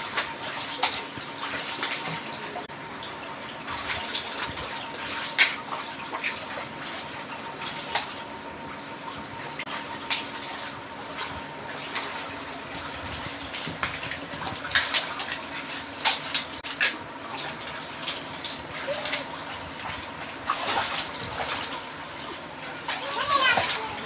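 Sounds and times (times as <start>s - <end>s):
water sloshing: 0.0s - 24.0s
children splashing in water: 11.2s - 24.0s.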